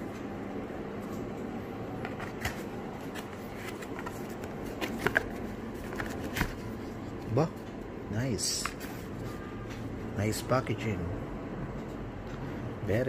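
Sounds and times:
room noise: 0.0s - 13.0s.

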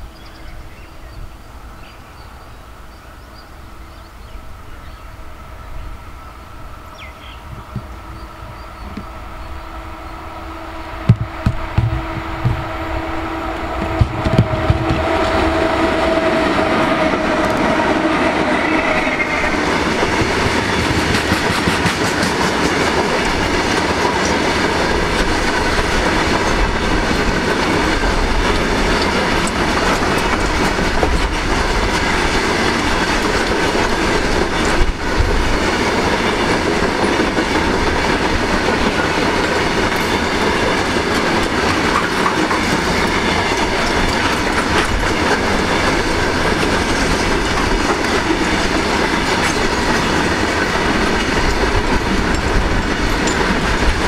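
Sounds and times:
locomotive steady tone: 0.0s - 54.0s
train rumble: 0.0s - 54.0s
wagon wheels clickety-clack: 19.6s - 54.0s.

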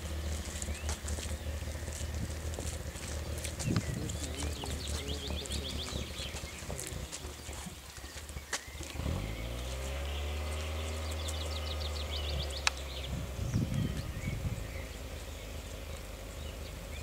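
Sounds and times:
low droning hum: 0.0s - 7.8s
songbird trilling: 0.3s - 17.0s.

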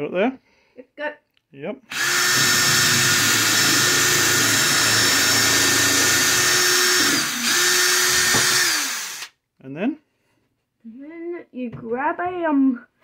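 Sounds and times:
hammer drill boring through wood: 1.9s - 9.3s.

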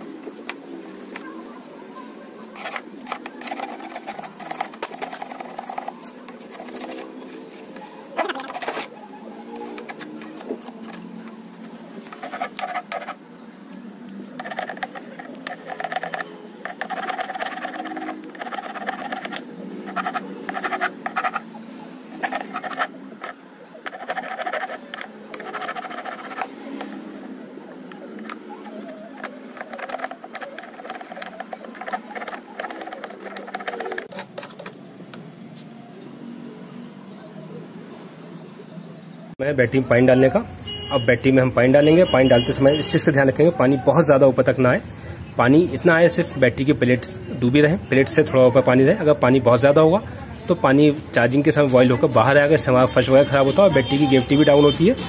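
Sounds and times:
metal tool filing metal: 2.5s - 7.2s, 8.2s - 9.0s, 12.0s - 13.2s, 14.4s - 27.2s, 28.1s - 34.2s
scraping battery terminal: 2.5s - 13.2s, 14.3s - 27.2s, 27.8s - 34.9s.

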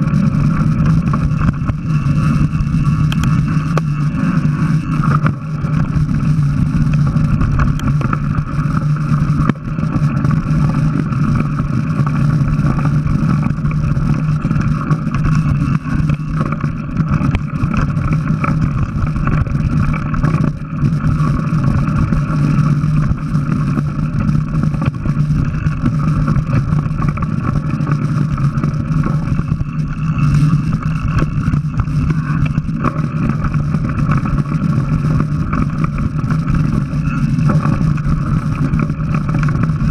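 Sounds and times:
bike parts rattling: 0.0s - 39.9s
bike tyres rumbling on dirt: 0.0s - 39.9s
constant low hum: 0.0s - 39.9s
wind on microphone: 0.0s - 39.9s.

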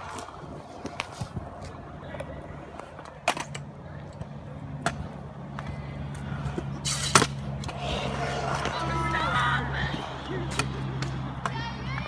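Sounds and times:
scooter rolling on concrete: 0.0s - 12.0s.

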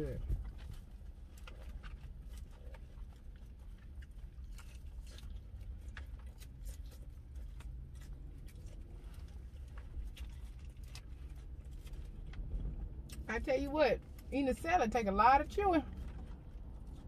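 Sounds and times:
chewing crisp salad: 0.1s - 13.4s.

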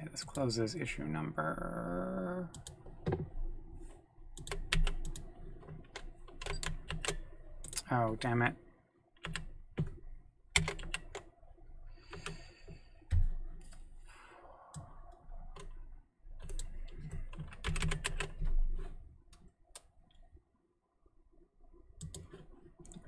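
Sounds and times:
typing on computer keyboard: 4.4s - 7.8s, 9.2s - 11.3s, 12.1s - 12.4s, 16.4s - 18.6s, 22.0s - 23.0s.

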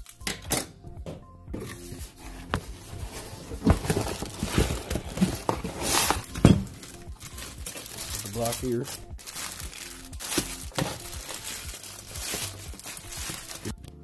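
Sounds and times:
cardboard box rummaging: 1.8s - 13.7s
plastic packaging crinkling: 3.6s - 13.9s.

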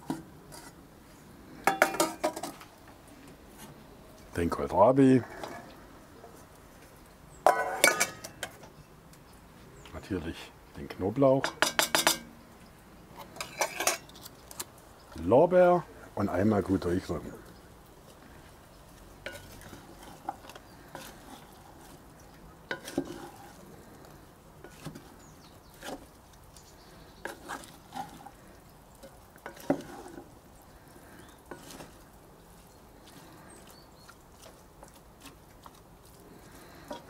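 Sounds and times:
wooden spatula scraping pot: 0.0s - 2.6s, 4.4s - 8.7s, 13.1s - 14.6s, 16.7s - 37.0s.

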